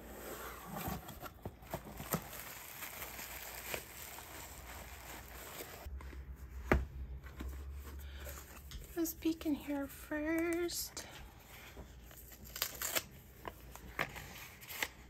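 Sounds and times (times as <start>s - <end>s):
cardboard box rustling: 0.1s - 8.7s
bubble wrap crinkling: 1.2s - 6.0s, 12.0s - 15.0s.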